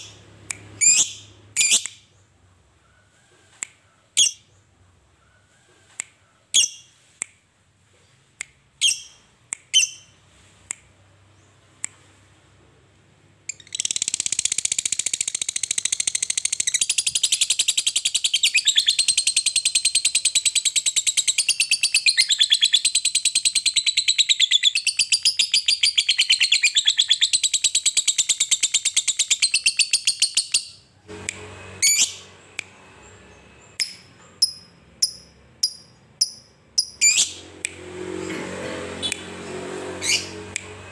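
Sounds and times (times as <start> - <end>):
lovebird chirps: 0.8 - 2.2, 4.2 - 4.6, 6.5 - 7.0, 8.8 - 10.2, 13.5 - 30.9, 31.8 - 37.4.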